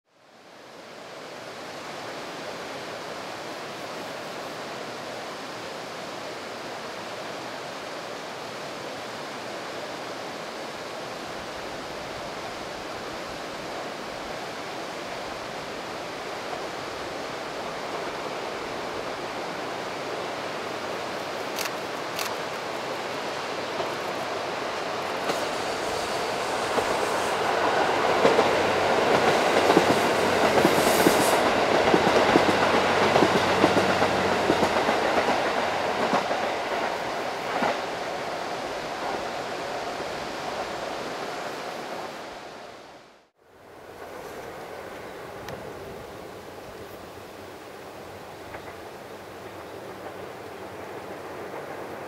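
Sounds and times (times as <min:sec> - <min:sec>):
river rapids rushing: 0:00.3 - 0:52.0
diesel train approaching: 0:11.3 - 0:42.1, 0:43.6 - 0:52.0
sharp clicks: 0:21.5 - 0:22.4.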